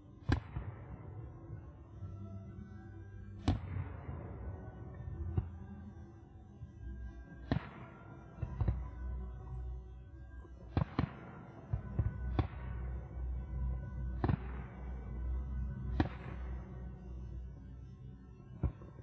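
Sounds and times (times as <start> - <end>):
music: 0.0 - 19.0
fireworks bursting with bangs: 10.7 - 13.4, 14.1 - 15.2.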